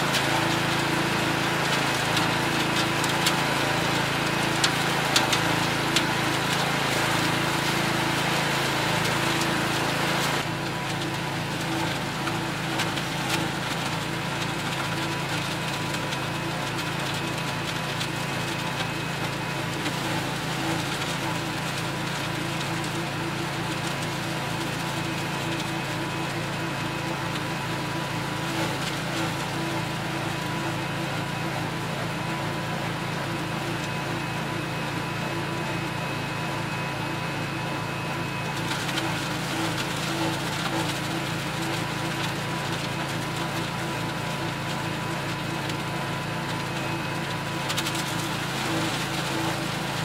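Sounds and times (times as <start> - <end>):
small engine running: 0.0 - 50.0
leaves being shredded: 37.2 - 50.0.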